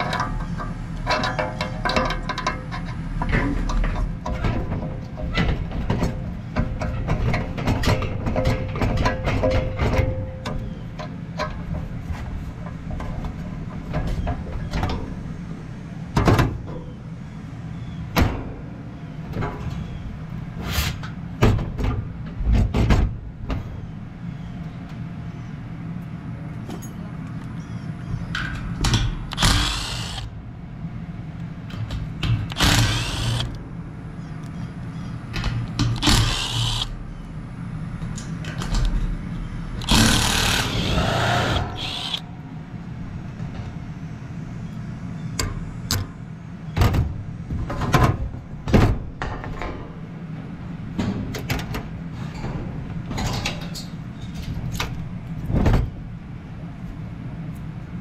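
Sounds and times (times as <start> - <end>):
steady low hum: 0.0 - 58.0
impact driver running screws: 29.3 - 30.3, 32.5 - 33.6, 36.0 - 36.9, 39.8 - 42.2.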